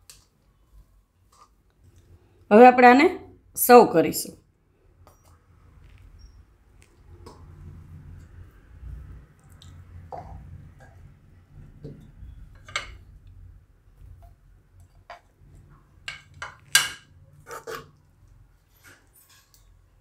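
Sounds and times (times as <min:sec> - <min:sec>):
metal spatula scraping wok: 0:16.8 - 0:18.0.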